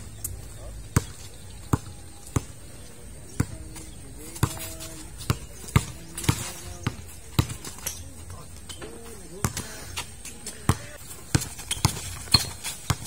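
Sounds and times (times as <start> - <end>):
basketball bouncing on concrete: 0.8 - 13.0.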